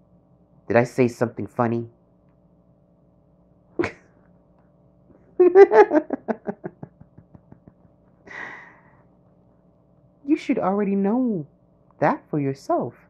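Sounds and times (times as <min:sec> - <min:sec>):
person laughing: 0:03.8 - 0:04.0, 0:05.4 - 0:08.7
breathy exhale: 0:08.3 - 0:09.0.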